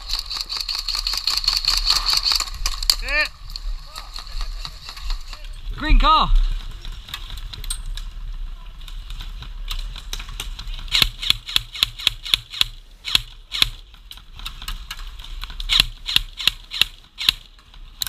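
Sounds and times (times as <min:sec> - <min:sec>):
airsoft gun firing: 0:10.8 - 0:13.8, 0:15.7 - 0:17.5.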